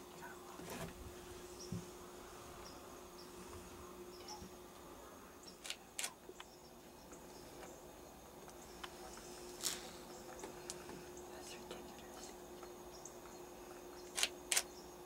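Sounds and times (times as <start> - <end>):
steady low hum: 0.0 - 15.0
sharp clicks: 14.1 - 14.7.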